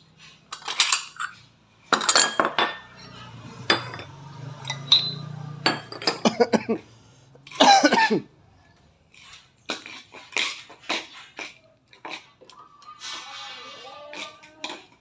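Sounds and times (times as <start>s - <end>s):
glasses and spoon clinking: 0.5s - 6.4s.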